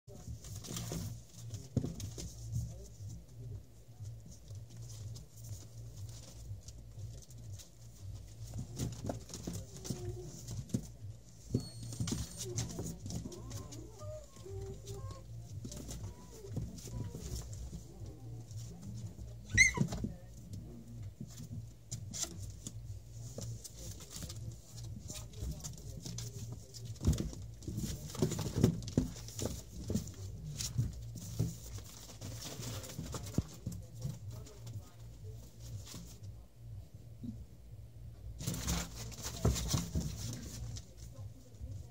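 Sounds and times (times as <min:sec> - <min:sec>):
puppies scrabbling on cardboard: 0:00.1 - 0:03.4, 0:04.0 - 0:36.2, 0:38.4 - 0:41.9
puppy squeaks: 0:19.4 - 0:20.0.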